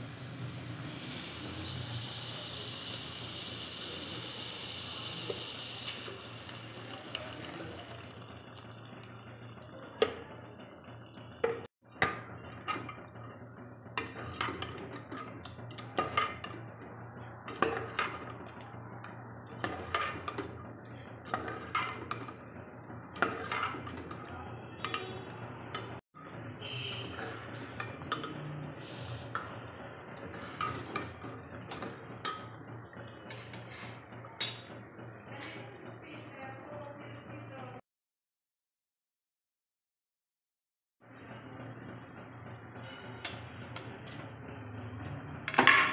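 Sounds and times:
ladle scraping metal pot: 0:11.5 - 0:18.7, 0:19.5 - 0:26.0, 0:26.6 - 0:32.6.

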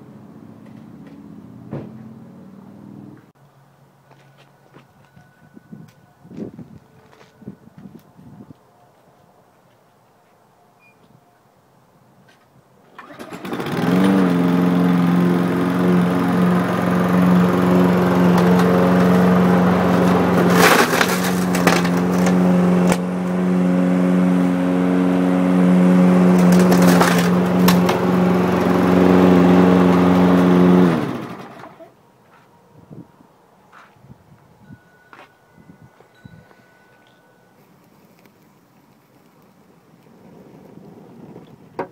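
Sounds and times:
lawn mower engine running: 0:12.9 - 0:31.9
mower blade cracking camera: 0:20.0 - 0:23.4, 0:26.3 - 0:28.1.

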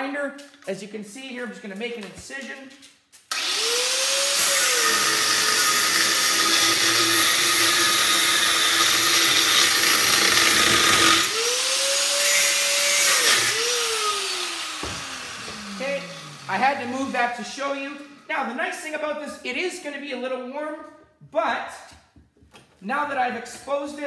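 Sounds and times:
angle grinder cutting metal: 0:03.3 - 0:17.4.

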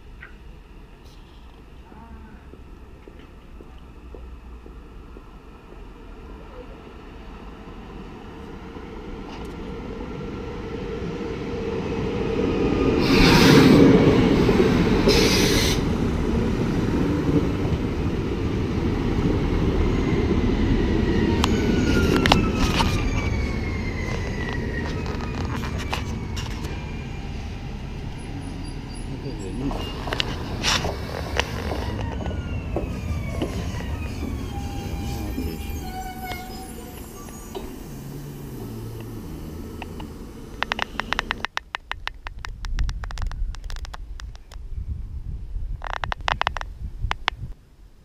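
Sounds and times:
train running noise: 0:11.6 - 0:41.6
brake squeal: 0:21.4 - 0:27.4, 0:28.1 - 0:41.4.

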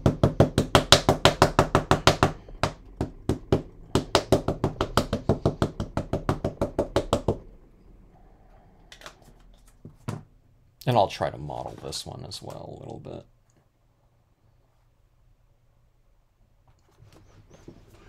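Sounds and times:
ink pad tapping on stamp: 0:00.0 - 0:07.4.

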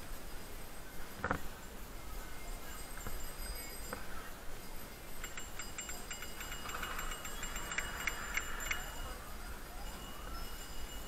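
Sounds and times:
bicycle bell ringing: 0:02.8 - 0:11.0.

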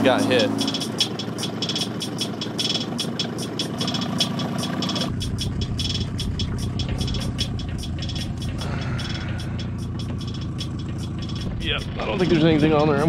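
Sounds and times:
outboard motor idling: 0:00.0 - 0:13.0
heavy low rumble: 0:05.0 - 0:13.0.

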